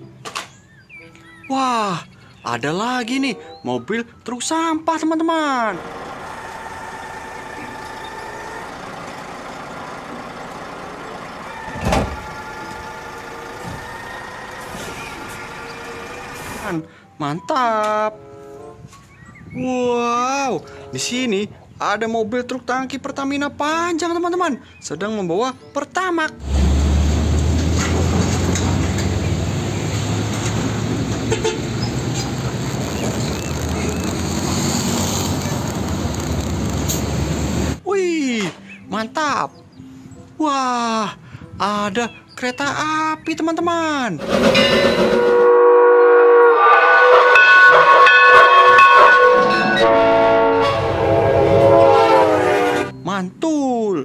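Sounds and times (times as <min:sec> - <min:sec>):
road traffic: 0:00.0 - 0:17.2, 0:18.1 - 0:19.6, 0:20.5 - 0:40.4, 0:41.1 - 0:43.6, 0:44.2 - 0:53.1
hydraulic arm whine: 0:05.8 - 0:09.5, 0:11.5 - 0:16.6
garbage truck engine running: 0:05.8 - 0:16.6, 0:26.4 - 0:37.8.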